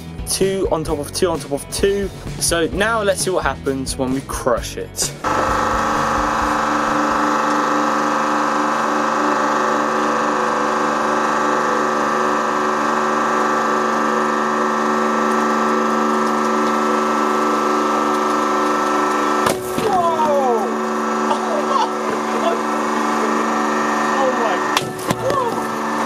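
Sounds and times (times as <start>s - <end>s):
hydraulic pump humming: 0.7s - 3.4s, 4.9s - 26.0s
plastic bottles cracking: 16.2s - 20.6s, 24.8s - 26.0s.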